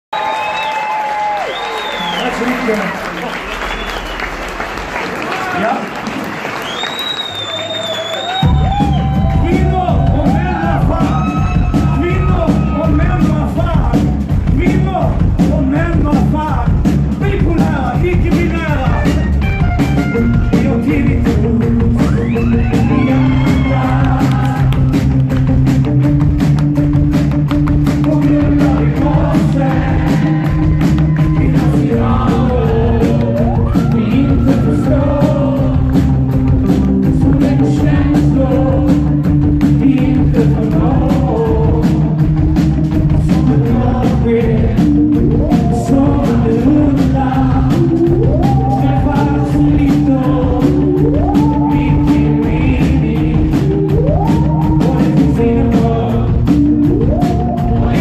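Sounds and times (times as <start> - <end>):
drums: 0.1 - 58.0
man singing into microphone: 20.5 - 24.7, 28.0 - 30.5, 31.2 - 36.0, 37.0 - 42.2, 43.1 - 58.0.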